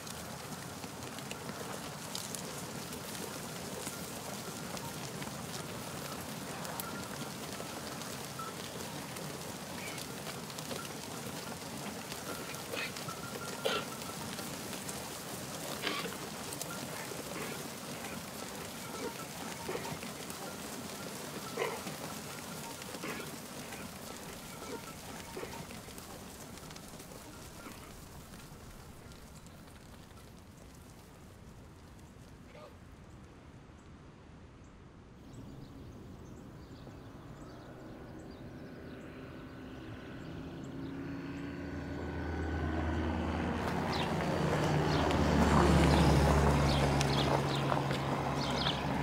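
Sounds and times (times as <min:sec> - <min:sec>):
goats calling: 0:00.0 - 0:30.0, 0:43.5 - 0:49.0
hooves rustling on dry ground: 0:00.0 - 0:33.3, 0:35.2 - 0:49.0.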